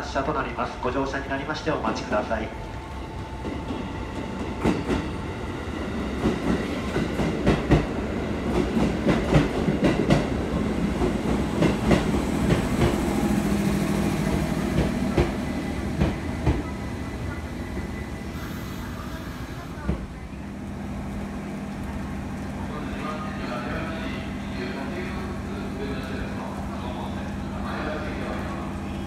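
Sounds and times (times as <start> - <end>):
train rumble: 0.0 - 29.0
train wheels clacking: 6.2 - 16.7.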